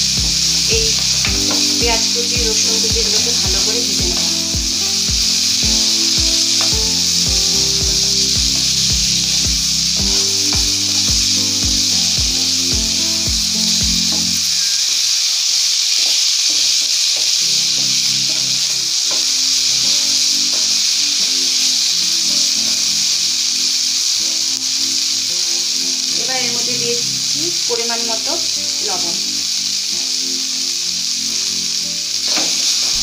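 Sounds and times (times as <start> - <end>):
background music with a beat: 0.0 - 14.5
chicken sizzling in oil: 0.0 - 33.0.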